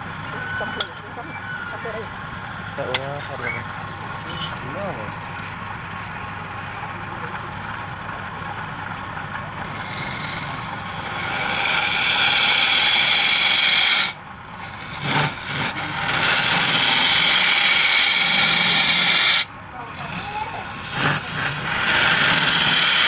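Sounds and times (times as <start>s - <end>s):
wood lathe running: 8.8s - 23.0s
chisel cutting spinning wood: 9.5s - 23.0s.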